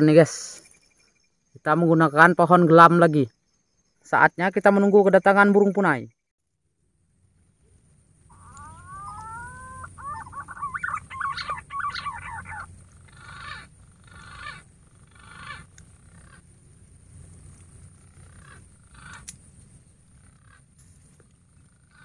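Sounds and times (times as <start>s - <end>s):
pigeon whistling calls: 8.3s - 14.6s.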